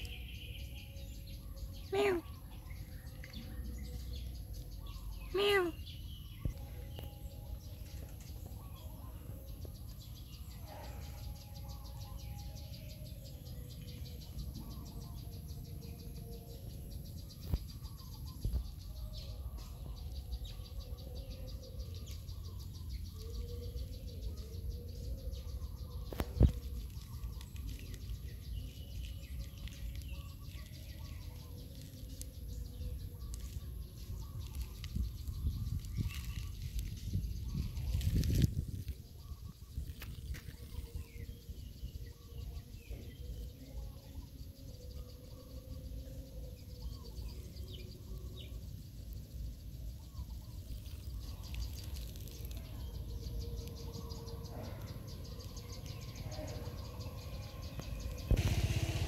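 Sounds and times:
faint birds: 0.0s - 59.0s
faint insects: 0.0s - 59.0s
steady low rumble: 45.3s - 59.0s.

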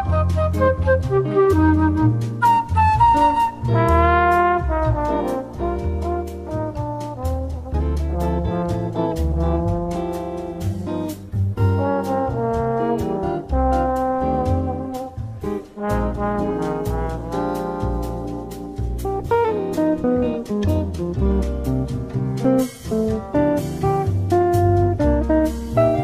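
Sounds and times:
brass horns melody: 0.0s - 20.0s
steady drum beat: 0.0s - 26.0s.

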